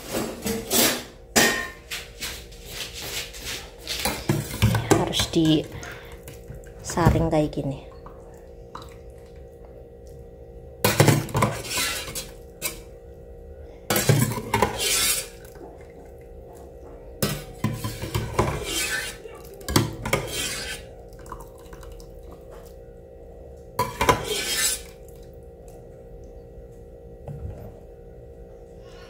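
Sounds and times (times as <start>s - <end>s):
metal spoon scraping pot: 11.2s - 12.8s, 13.9s - 15.4s, 17.3s - 20.9s, 23.8s - 24.9s.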